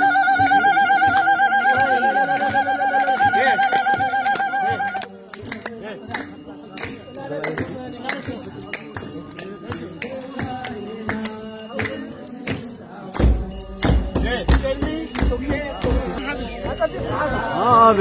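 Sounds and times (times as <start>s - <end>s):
jingling rattling percussion: 0.0s - 18.0s
voices singing a chant: 0.0s - 18.0s
deep drum beats: 12.5s - 18.0s.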